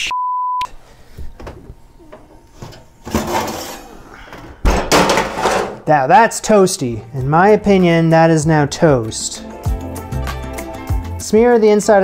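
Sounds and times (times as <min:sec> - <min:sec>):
baking sheet clattering: 0:02.6 - 0:03.9, 0:04.6 - 0:05.9.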